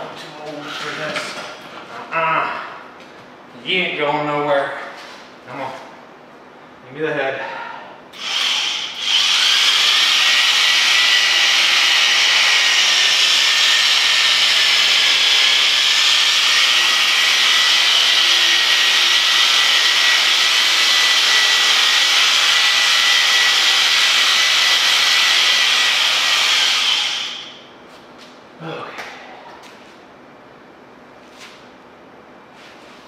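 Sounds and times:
electric shears whining: 8.1s - 27.6s.

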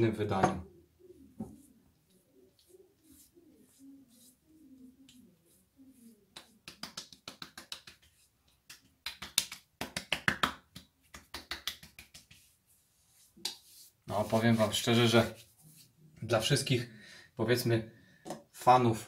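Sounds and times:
hand slapping wet skin: 6.3s - 12.6s.

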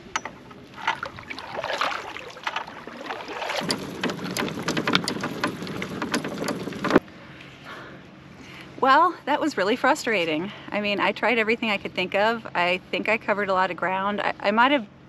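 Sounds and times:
gear clattering and rattling: 0.0s - 7.0s
kayak hauled over pavement: 0.0s - 7.1s.

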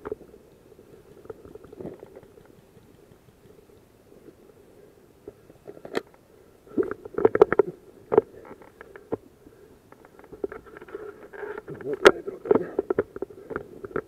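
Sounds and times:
gear knocking against camera mount: 1.7s - 3.9s.

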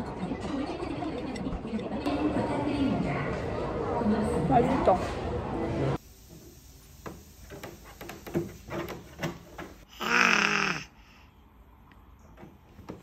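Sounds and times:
baby yelling: 9.9s - 11.0s
baby babbling: 9.9s - 11.2s.

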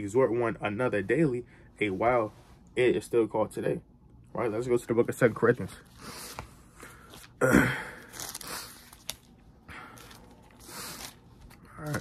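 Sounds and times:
book pages turning: 8.0s - 12.0s.

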